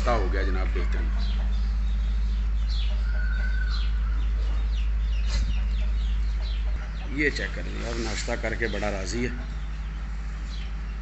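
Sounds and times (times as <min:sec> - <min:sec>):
chicks cheeping: 0:00.0 - 0:11.0
steady low hum: 0:00.0 - 0:11.0.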